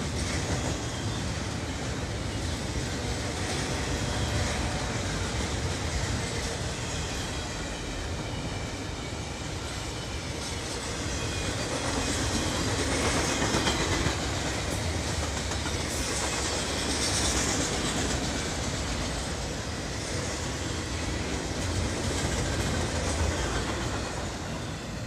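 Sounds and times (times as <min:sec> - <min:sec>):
freight train rumbling past: 0:00.0 - 0:25.0.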